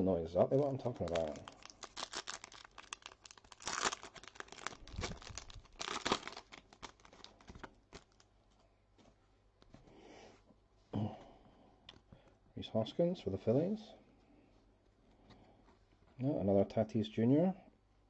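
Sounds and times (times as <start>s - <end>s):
plastic foil wrapper tearing: 0.8s - 8.3s.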